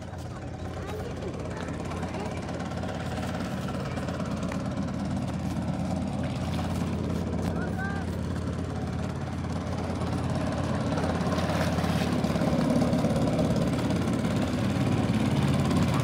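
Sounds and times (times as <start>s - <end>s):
motor engine idling: 0.0s - 16.0s.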